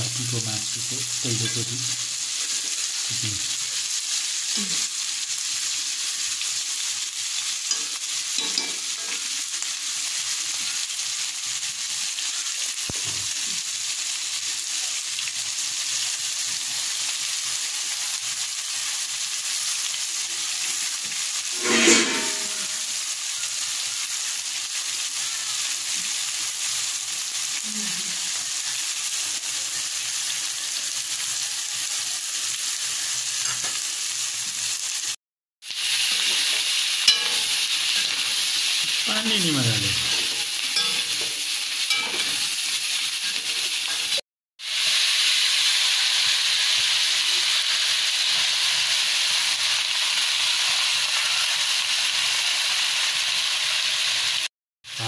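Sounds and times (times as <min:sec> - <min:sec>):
meat sizzling in hot oil: 0:00.0 - 0:55.0
spatula stirring in a pan: 0:35.8 - 0:39.0, 0:40.1 - 0:44.2.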